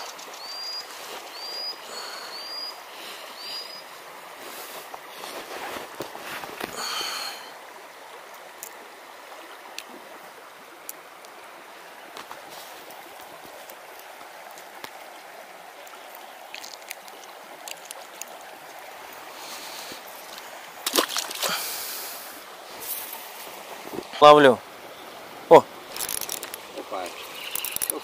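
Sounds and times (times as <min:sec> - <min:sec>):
river flowing: 0:00.0 - 0:28.0
faint clicks: 0:25.9 - 0:26.7, 0:27.4 - 0:28.0.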